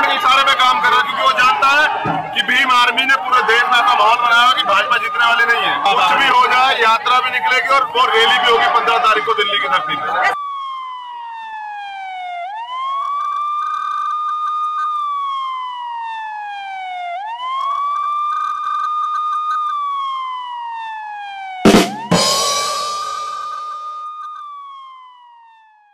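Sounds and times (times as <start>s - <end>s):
police siren wailing: 0.0s - 25.9s
sharp loud bang: 21.7s - 24.0s.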